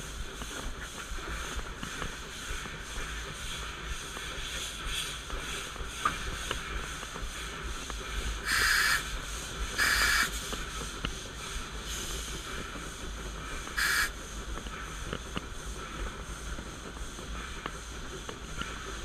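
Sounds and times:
hissing steam bursts: 0:00.0 - 0:15.1
steam locomotive running: 0:00.0 - 0:19.0.

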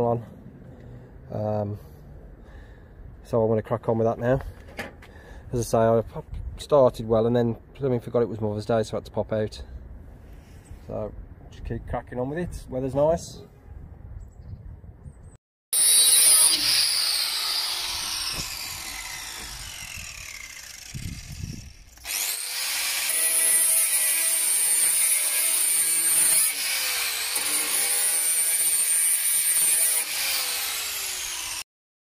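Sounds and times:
angle grinder grinding steel: 0:15.8 - 0:31.6.

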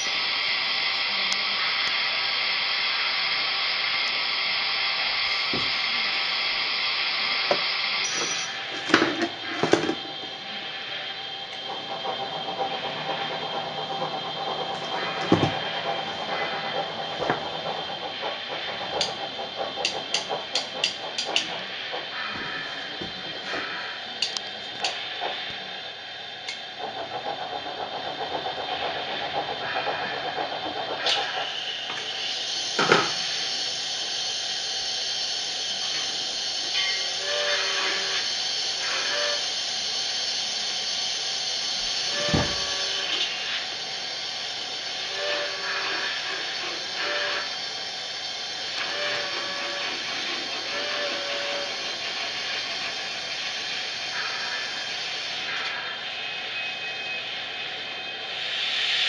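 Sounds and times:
model steam locomotive hissing: 0:00.0 - 0:59.0.

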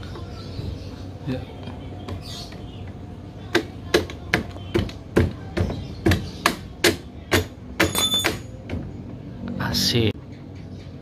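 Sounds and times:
hammer striking metal axle: 0:06.4 - 0:08.8
metallic ring: 0:07.8 - 0:08.6.

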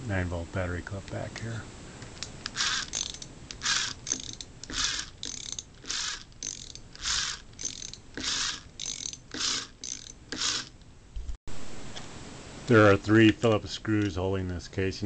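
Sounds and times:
gears whirring: 0:02.4 - 0:10.8.

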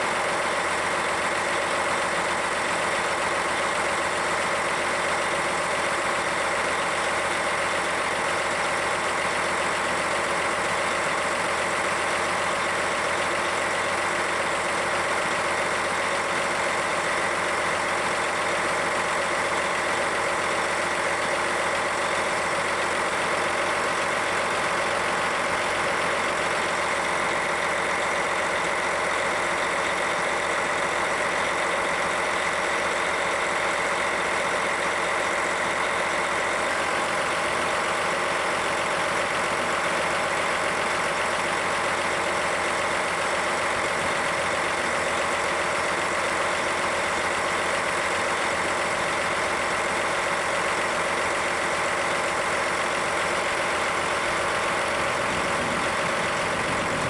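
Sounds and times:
diesel engine running steadily: 0:00.0 - 0:57.0.

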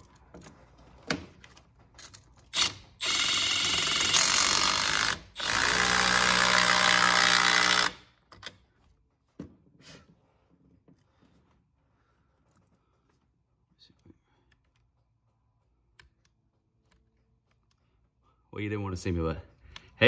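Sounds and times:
cordless drill running: 0:02.6 - 0:08.1.

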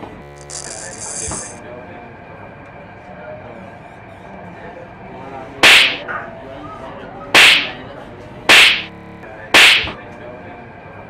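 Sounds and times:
slaps to the face: 0:05.6 - 0:06.0, 0:07.4 - 0:07.8, 0:08.5 - 0:08.9, 0:09.6 - 0:10.0.

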